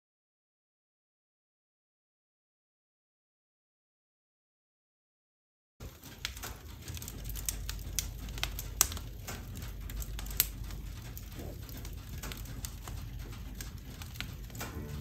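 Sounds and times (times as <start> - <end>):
logs crackling and popping: 5.8 - 15.0
low fire rumble: 5.8 - 15.0.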